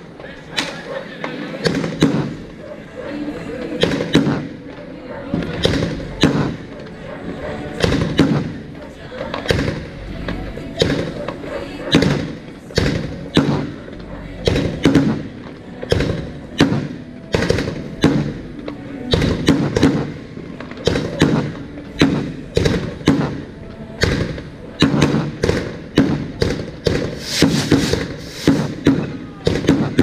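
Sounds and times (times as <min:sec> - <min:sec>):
fireworks bangs: 0:24.8 - 0:30.0.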